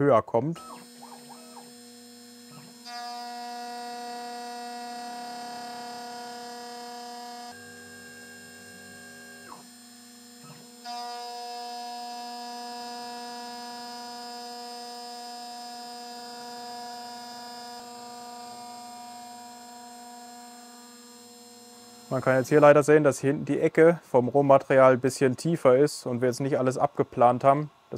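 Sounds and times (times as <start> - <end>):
milling machine whine: 0.6 - 22.8.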